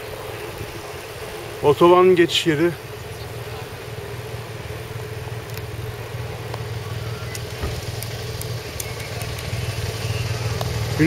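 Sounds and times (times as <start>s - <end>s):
road and wind noise: 0.0s - 11.0s
motorcycle engine running: 2.7s - 11.0s
faint clicks: 7.3s - 9.6s.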